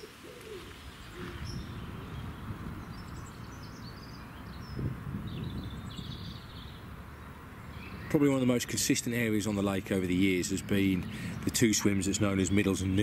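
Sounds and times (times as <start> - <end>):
small birds chirping: 0.0 - 13.0
wind buffeting microphone: 0.7 - 8.1.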